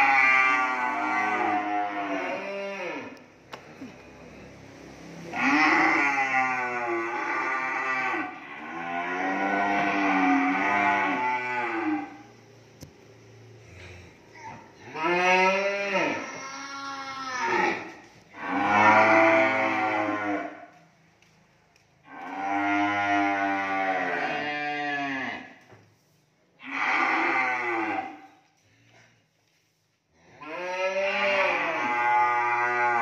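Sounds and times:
cattle mooing: 0.0s - 3.2s, 5.3s - 12.2s, 14.8s - 20.6s, 22.1s - 25.5s, 26.6s - 28.2s, 30.4s - 33.0s.

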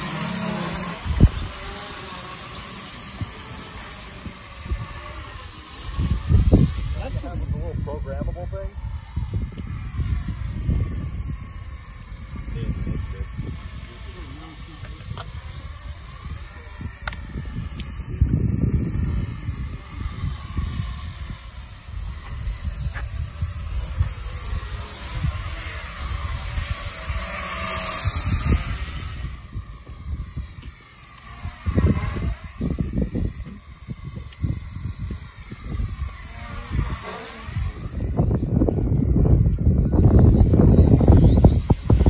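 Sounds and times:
drone propellers whirring: 0.0s - 42.0s
wind buffeting microphone: 0.0s - 42.0s.

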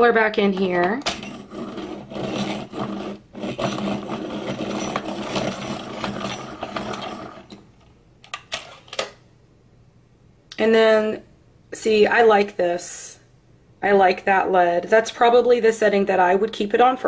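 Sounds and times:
pencil sharpener grinding: 1.2s - 7.6s.

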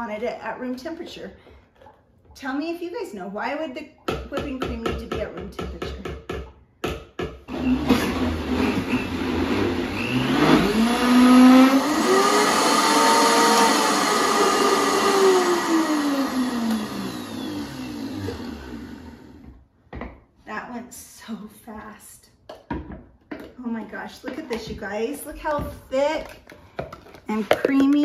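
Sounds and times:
countertop blender running: 7.5s - 19.5s.

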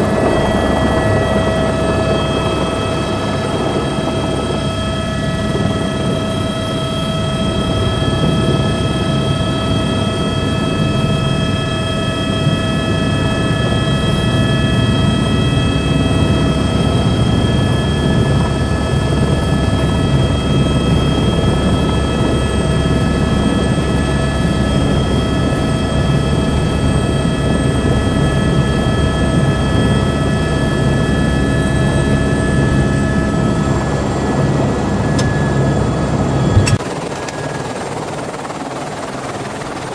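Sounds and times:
high whine: 0.0s - 9.5s, 30.9s - 39.6s
helicopter engine and rotor: 0.0s - 39.9s.

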